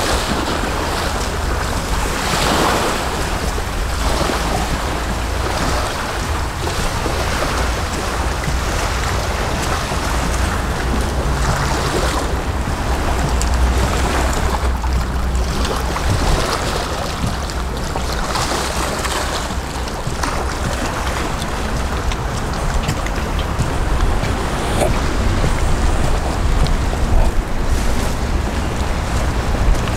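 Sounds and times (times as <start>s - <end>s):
small waves washing ashore: 0.0s - 29.9s
wind rumble on microphone: 0.0s - 29.9s.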